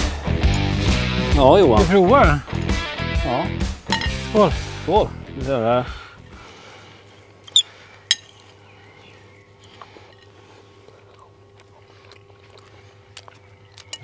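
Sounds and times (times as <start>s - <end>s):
cutlery clink: 3.9s - 4.2s.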